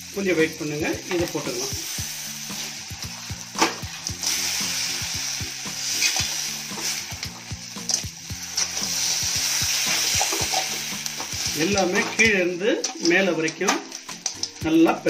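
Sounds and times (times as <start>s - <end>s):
food sizzling in a wok: 0.0s - 15.0s
metal spatula scraping a pan: 5.8s - 14.5s.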